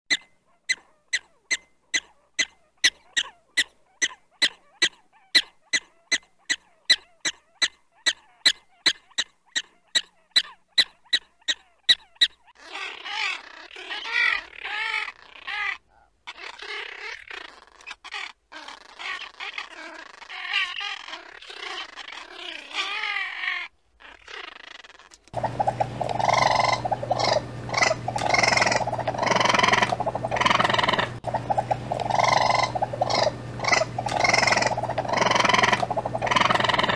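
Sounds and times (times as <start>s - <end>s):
prairie dog chirping barks: 0.1s - 24.5s, 25.4s - 36.9s
gulls calling: 25.3s - 36.9s.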